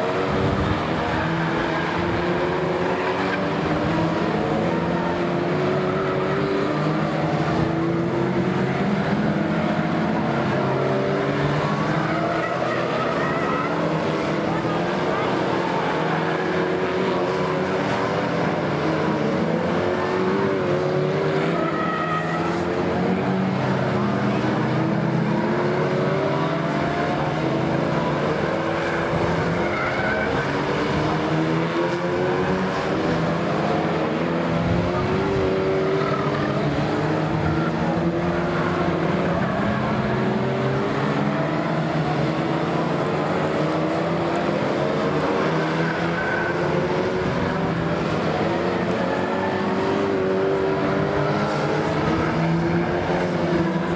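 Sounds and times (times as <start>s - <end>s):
race car engines revving: 0.0s - 53.9s
tyre squeals: 28.4s - 31.4s.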